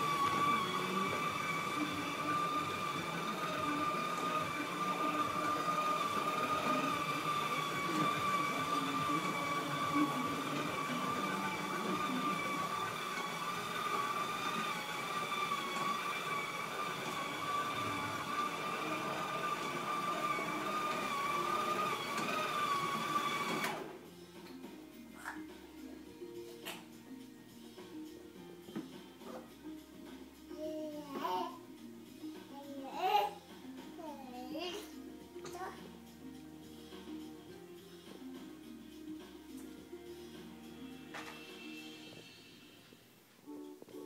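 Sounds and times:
toy train electric motor whine: 0.0 - 23.9, 40.8 - 43.0.

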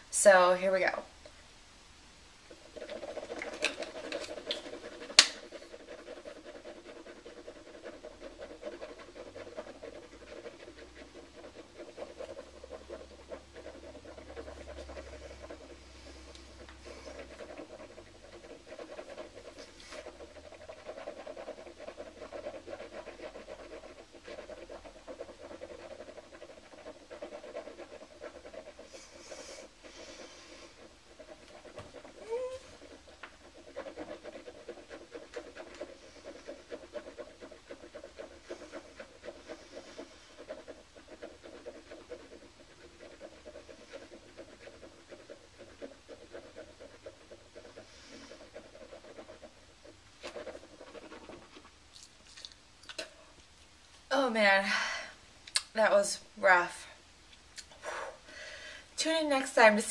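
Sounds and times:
woman breathing through nose: 57.8 - 59.0.

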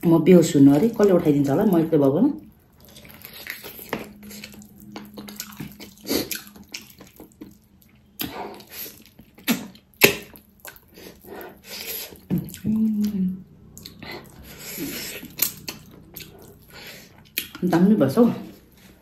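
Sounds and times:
person chewing wetly: 2.5 - 17.6.

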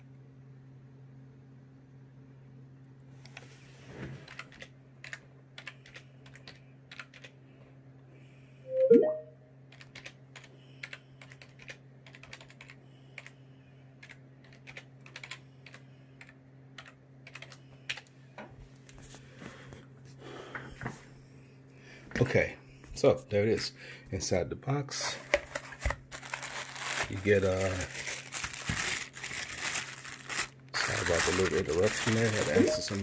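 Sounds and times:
steady low hum: 4.6 - 33.0.

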